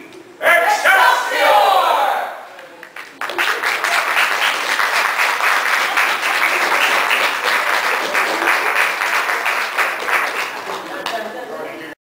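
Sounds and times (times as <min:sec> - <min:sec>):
audience applauding: 0:02.6 - 0:11.4.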